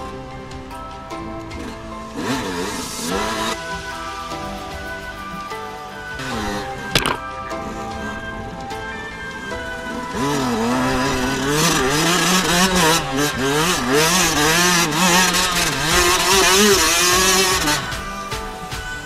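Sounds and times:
dirt bike engine revving: 1.6 - 3.6, 6.2 - 7.3, 10.0 - 19.0.

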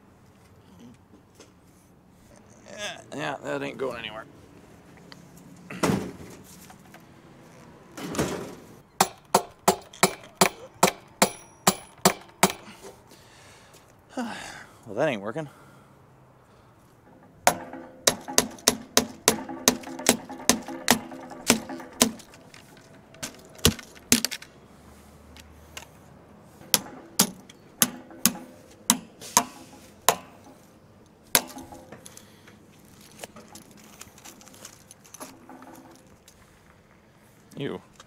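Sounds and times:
metal clanking on metal: 8.0 - 13.0, 17.0 - 24.6, 26.6 - 32.3, 33.0 - 36.3.

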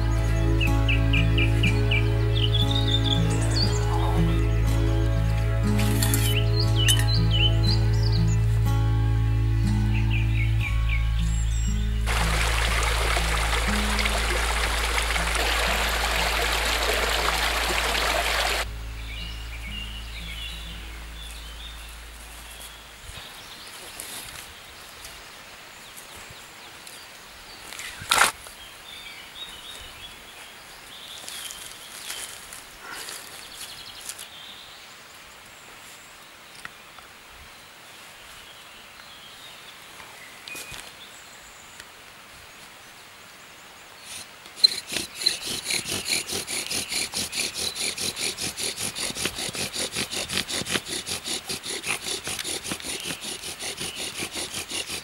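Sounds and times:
bird chirps: 0.0 - 5.0, 5.8 - 8.5, 16.5 - 24.0
hand saw cutting wood: 5.7 - 7.1, 12.1 - 18.7, 44.1 - 55.0.

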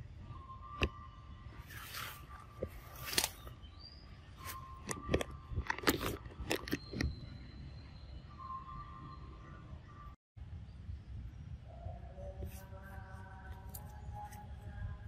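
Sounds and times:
faint high-pitched tone: 6.8 - 15.0.

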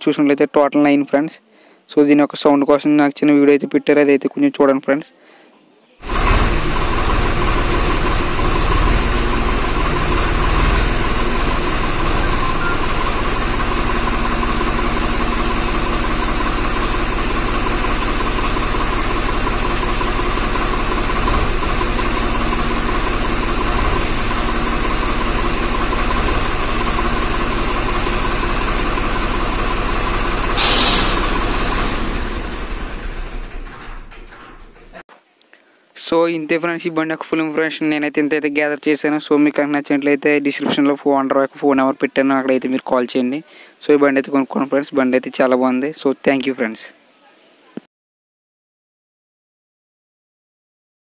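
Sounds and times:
tractor diesel engine running: 6.0 - 35.0.

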